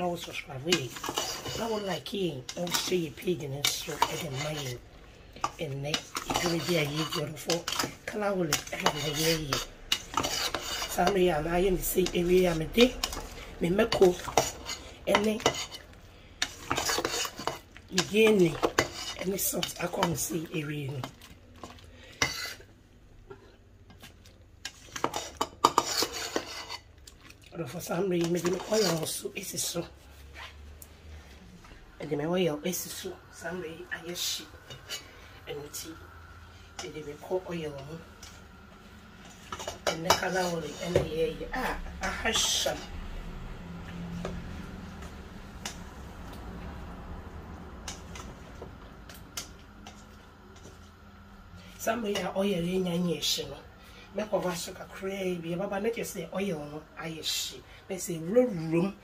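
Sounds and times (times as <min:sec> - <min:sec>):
spatula scraping a metal bowl: 0:00.0 - 0:04.8, 0:05.4 - 0:20.3, 0:21.6 - 0:22.7, 0:24.6 - 0:26.9, 0:27.7 - 0:29.8, 0:39.2 - 0:43.1.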